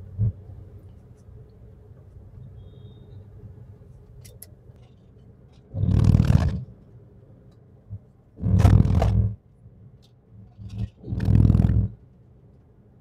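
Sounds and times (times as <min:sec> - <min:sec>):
car cabin drone: 0:00.0 - 0:04.0, 0:04.8 - 0:09.6, 0:10.3 - 0:12.2
tyres on rumble strips: 0:04.8 - 0:06.8, 0:07.9 - 0:09.4, 0:10.4 - 0:12.0.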